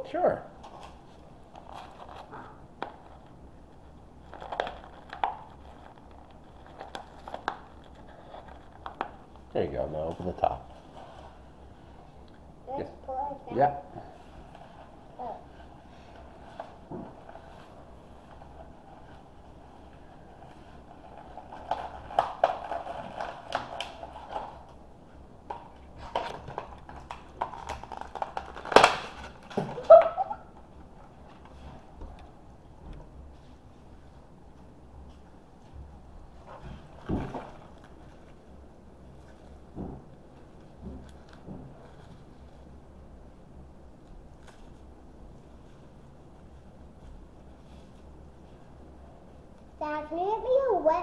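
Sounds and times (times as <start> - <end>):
plastic packaging crackling: 0.6 - 11.4, 16.1 - 24.8, 25.5 - 30.6
plastic wrapping crinkling: 0.6 - 11.6, 14.1 - 24.8, 25.5 - 31.8.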